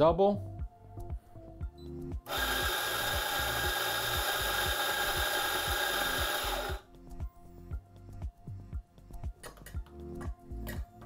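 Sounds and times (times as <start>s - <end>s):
coffee grinder whirring: 2.2s - 6.8s.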